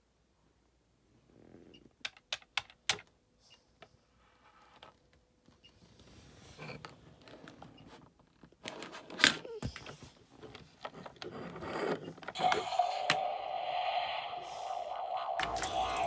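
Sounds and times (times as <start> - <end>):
steady mid-pitched tone with hiss: 12.4 - 16.0.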